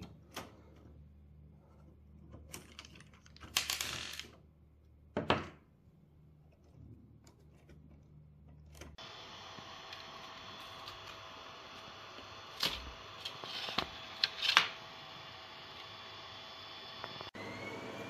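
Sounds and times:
plastic parts clicking and knocking: 1.8 - 4.5.

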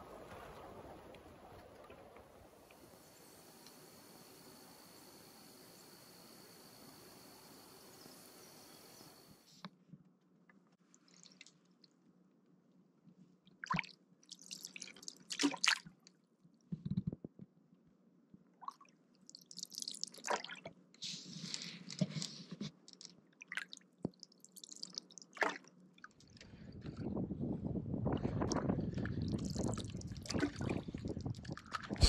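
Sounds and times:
paddle strokes in water: 0.0 - 5.3.

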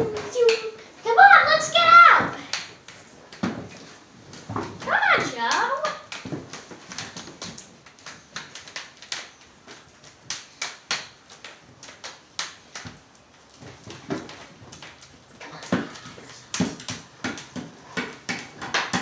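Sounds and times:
puppets knocking on wooden frame: 15.5 - 19.0.

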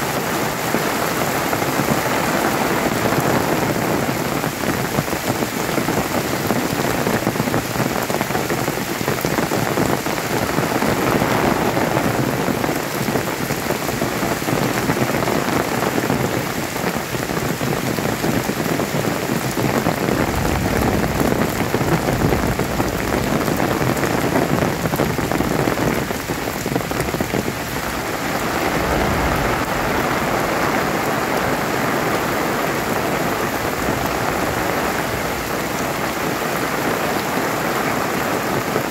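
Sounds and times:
heavy rain hissing: 0.0 - 38.9
low rumble: 19.9 - 25.2, 26.8 - 31.4.

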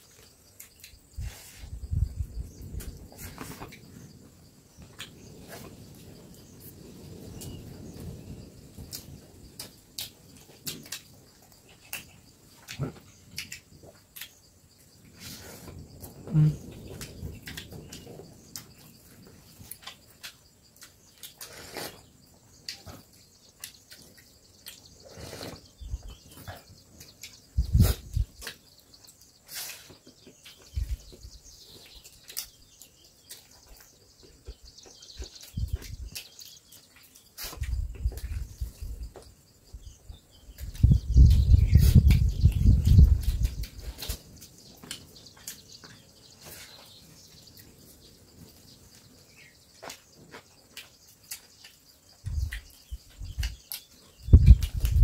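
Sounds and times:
soft clicks and knocks of eating: 8.8 - 14.9, 15.7 - 21.6, 22.3 - 27.6, 28.3 - 39.3, 42.1 - 46.6, 49.7 - 55.0.

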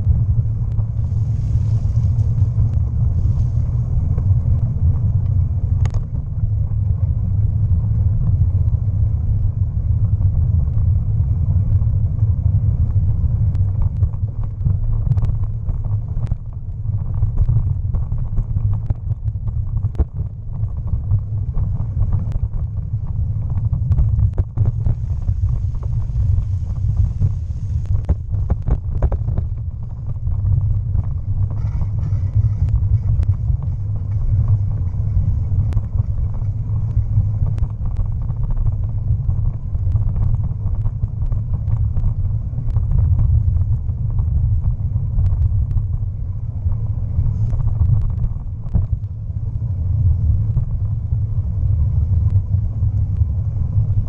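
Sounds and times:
air buffeting on camera: 0.0 - 54.0
bicycle tyres rolling: 0.0 - 54.0
bike clicks and rattles: 13.7 - 42.2.

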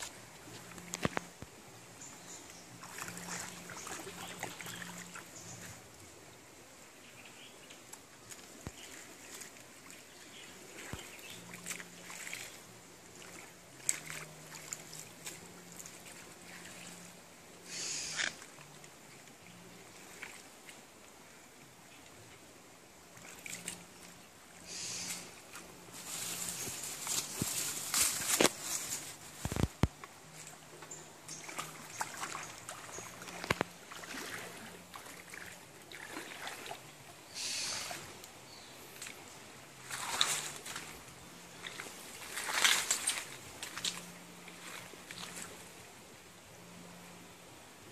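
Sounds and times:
footsteps wading through water: 0.0 - 6.1, 7.8 - 21.2, 23.0 - 24.2, 25.0 - 46.0
hands rustling through leaf litter: 24.7 - 29.9.

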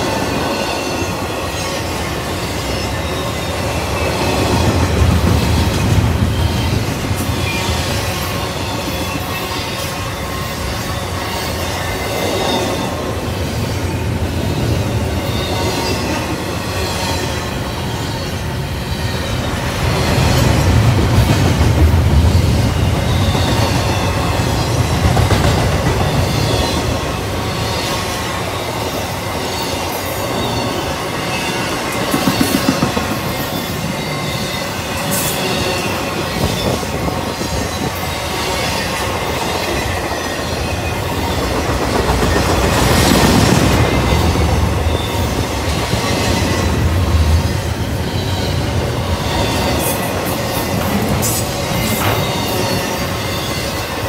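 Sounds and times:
rail clicks: 0.0 - 54.0
train wheels rumbling on rail: 0.0 - 54.0
high wheel squeal: 43.0 - 54.0.

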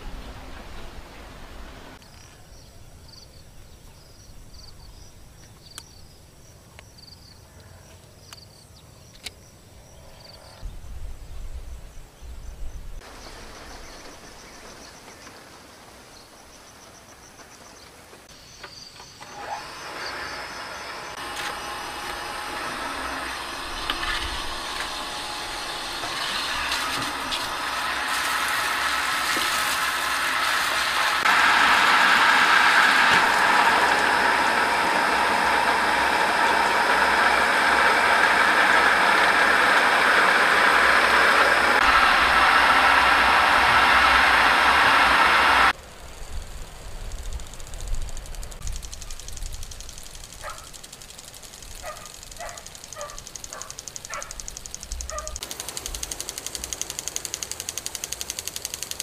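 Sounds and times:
electric water pump motor: 19.2 - 59.0.

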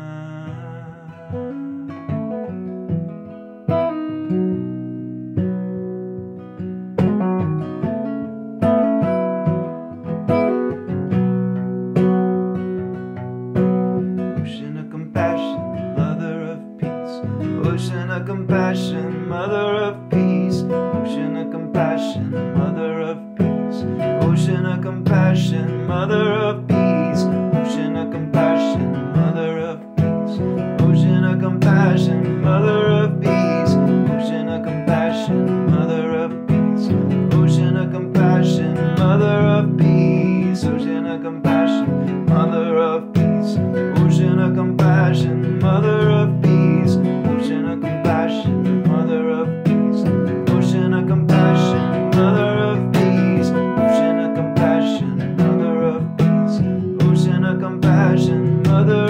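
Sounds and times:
man singing a chant: 0.0 - 2.0, 14.4 - 59.0
acoustic guitar strumming: 0.0 - 59.0.

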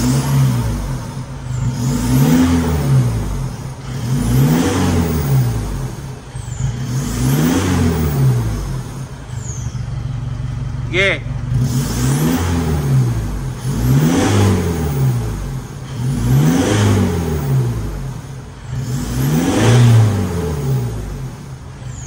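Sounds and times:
diesel engine revving: 0.0 - 22.0.

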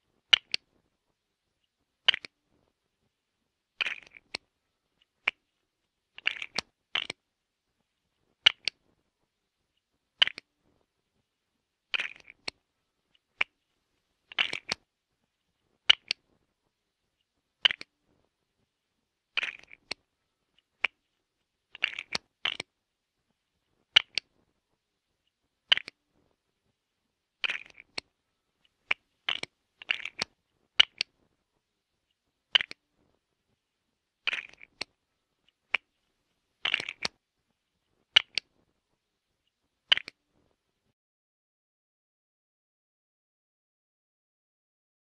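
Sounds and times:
plastic bricks clicking and clattering: 2.0 - 2.3, 3.8 - 4.4, 6.2 - 7.2, 10.2 - 10.4, 11.9 - 12.6, 14.3 - 14.8, 17.6 - 17.9, 19.4 - 20.0, 21.7 - 22.7, 23.9 - 24.3, 25.7 - 26.0, 27.4 - 28.1, 28.7 - 31.1, 32.5 - 32.8, 34.2 - 35.0, 36.6 - 37.2, 38.2 - 38.5, 39.9 - 40.2.

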